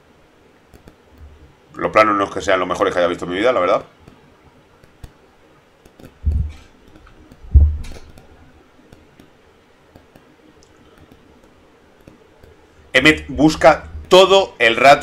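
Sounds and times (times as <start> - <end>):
computer keyboard clicking: 0.7 - 1.3, 5.8 - 8.3, 9.9 - 12.6
dull low thumps: 6.2 - 6.7, 7.3 - 8.2.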